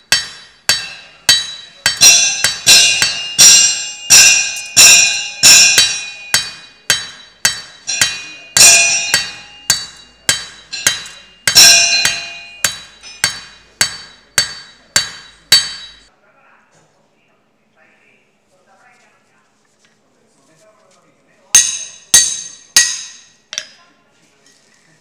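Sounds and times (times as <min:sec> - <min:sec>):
anvil ringing: 0:00.0 - 0:16.1, 0:21.5 - 0:23.8
hammer striking metal on anvil: 0:00.0 - 0:16.1, 0:21.5 - 0:23.8.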